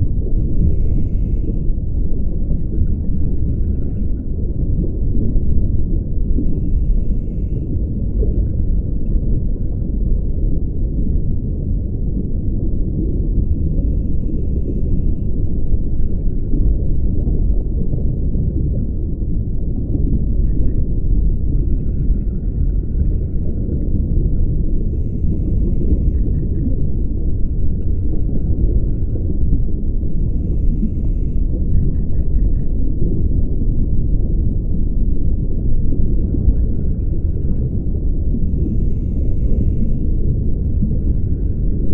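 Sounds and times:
muffled underwater rumble: 0.0s - 41.9s
scuba regulator breaths: 0.4s - 1.7s, 6.4s - 7.7s, 13.5s - 15.3s, 24.7s - 26.4s, 30.1s - 31.5s, 38.4s - 40.2s.

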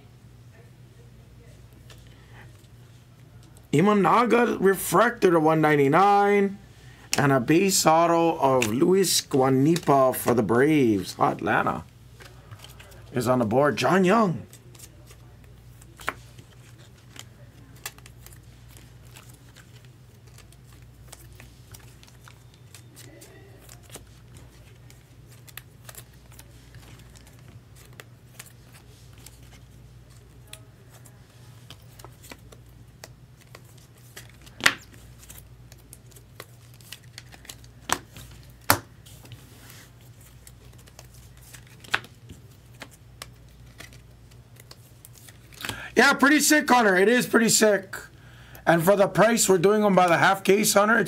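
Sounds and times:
cards clicking and rustling: 8.5s - 10.4s, 11.3s - 13.1s, 14.2s - 45.8s.

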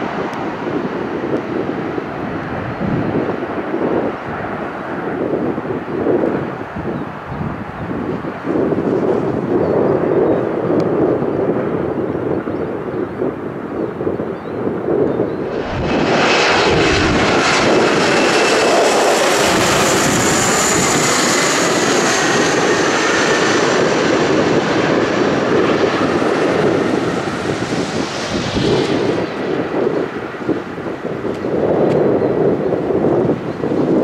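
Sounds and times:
jet engine high whine: 0.0s - 34.0s
jet passing low overhead: 0.0s - 34.0s.

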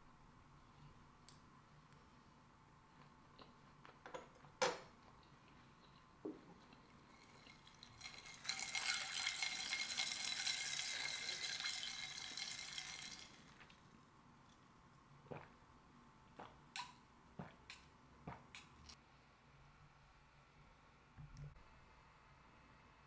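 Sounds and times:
drink fizzing: 6.6s - 13.8s.

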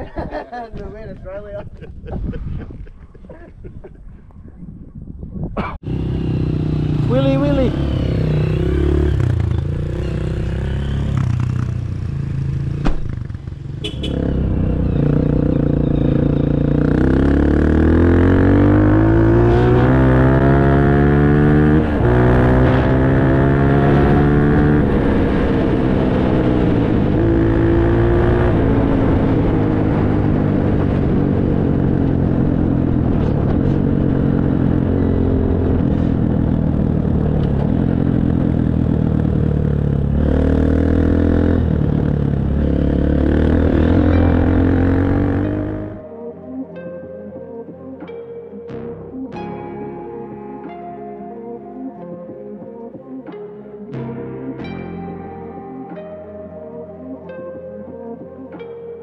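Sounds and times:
dirt bike engine accelerating: 5.8s - 46.0s.

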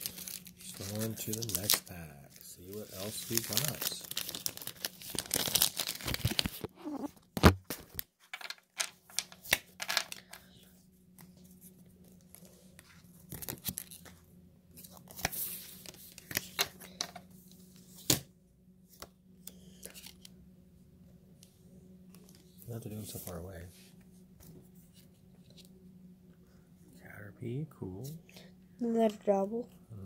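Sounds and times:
foil wrapper crinkling and tearing: 0.0s - 7.0s.

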